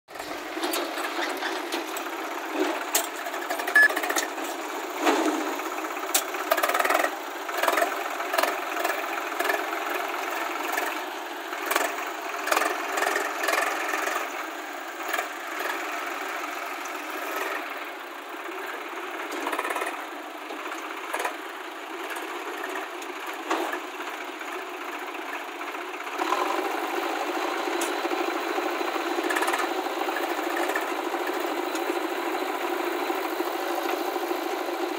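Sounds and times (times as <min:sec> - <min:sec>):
diesel engines running: 0:00.1 - 0:34.9
machines knocking and rattling: 0:00.2 - 0:09.6, 0:19.2 - 0:21.4.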